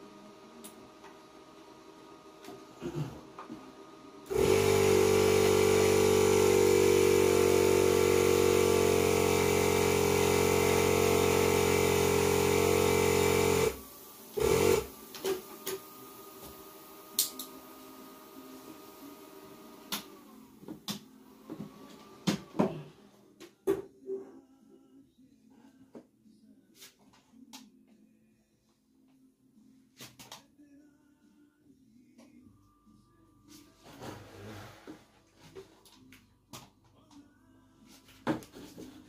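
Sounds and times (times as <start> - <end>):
electric air compressor running: 4.2 - 20.3.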